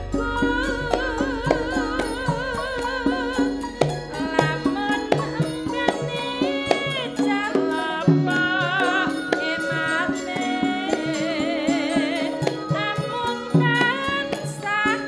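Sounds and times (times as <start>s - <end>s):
drum strokes: 0.0s - 14.9s
struck gamelan notes: 0.0s - 15.0s
woman singing wavering line: 0.0s - 15.0s.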